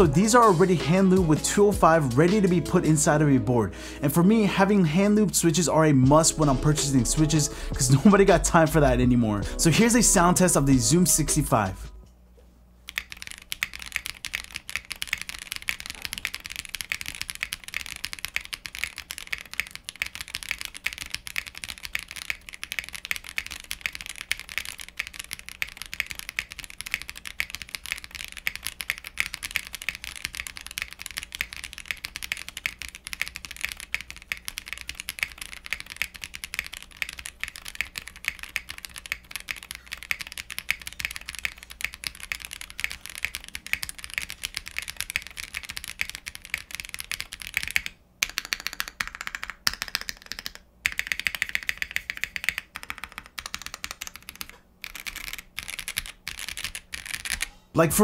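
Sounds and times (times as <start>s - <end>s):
mechanical keyboard typing: 12.9s - 57.5s.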